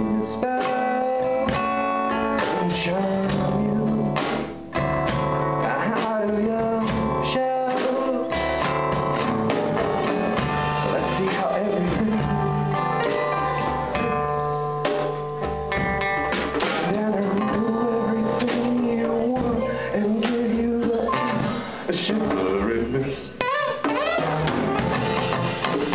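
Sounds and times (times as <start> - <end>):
drum kit: 0.0 - 25.9
strummed acoustic guitar: 0.0 - 25.9.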